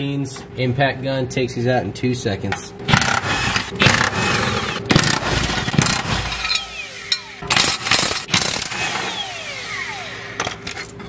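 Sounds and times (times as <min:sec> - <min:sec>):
impact wrench rattling: 0:02.9 - 0:10.9.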